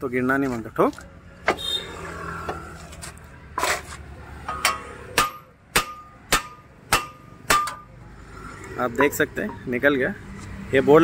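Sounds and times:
hammer striking metal: 0:04.5 - 0:07.9.

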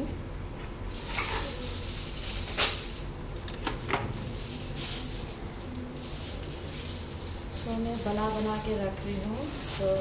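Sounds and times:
kitchen rustling: 0:00.6 - 0:10.0.

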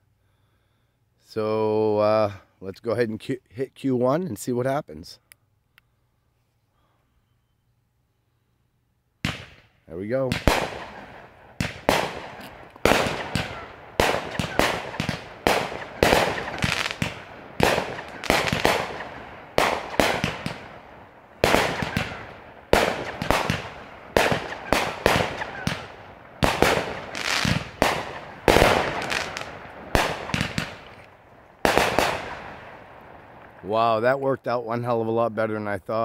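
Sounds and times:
fireworks shots and bursts: 0:09.2 - 0:33.7.

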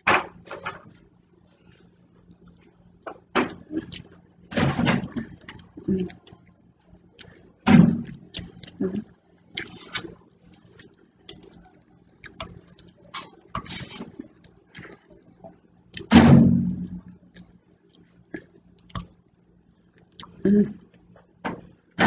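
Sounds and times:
chewing: 0:03.6 - 0:04.2, 0:05.2 - 0:16.1, 0:19.9 - 0:21.1.

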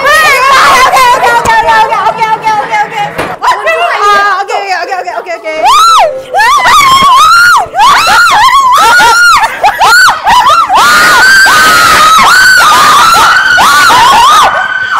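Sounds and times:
people screaming in fright: 0:05.6 - 0:14.9.

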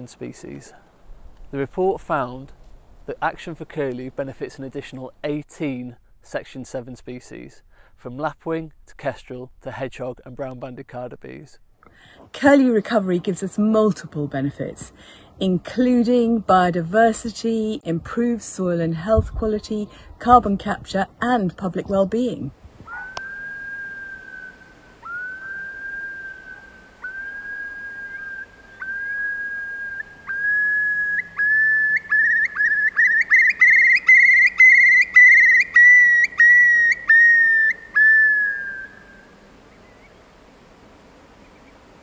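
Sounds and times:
curlew bubbling song: 0:22.9 - 0:39.1.

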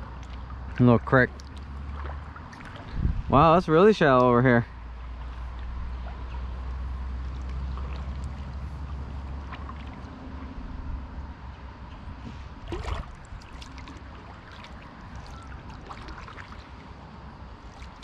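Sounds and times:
water dripping off paddle: 0:01.3 - 0:03.0, 0:12.7 - 0:16.8
paddle splash: 0:01.3 - 0:03.1, 0:05.1 - 0:10.8, 0:11.9 - 0:18.0.

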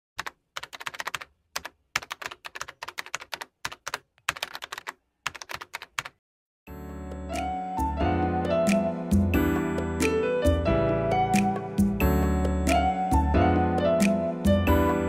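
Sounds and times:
typing on computer keyboard: 0:00.2 - 0:06.2.

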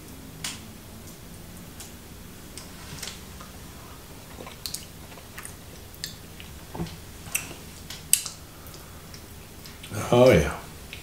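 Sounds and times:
person chewing food: 0:02.6 - 0:09.9
wet mouth sounds: 0:04.3 - 0:06.6.

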